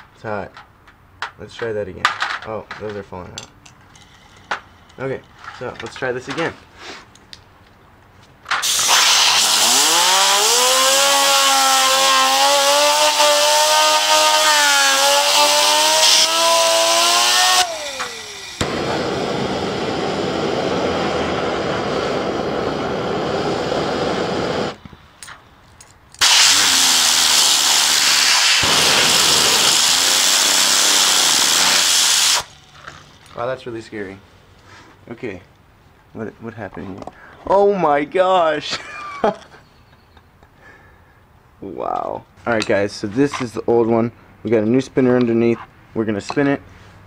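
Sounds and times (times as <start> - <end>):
air blow gun hissing: 8.6 - 24.8, 26.2 - 32.7.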